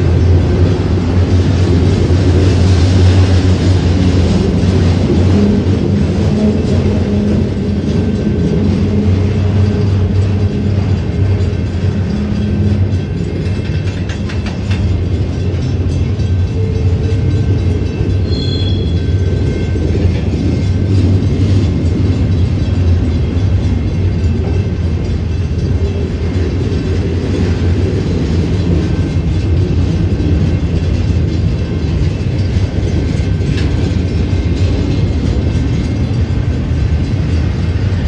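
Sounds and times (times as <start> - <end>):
train wheels rumbling on track: 0.0 - 38.0
wheels clicking over rail joints: 0.0 - 38.0.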